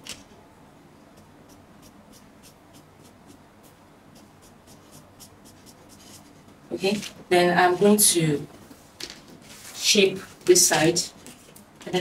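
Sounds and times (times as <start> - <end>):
marker scratching on paper: 1.2 - 8.1.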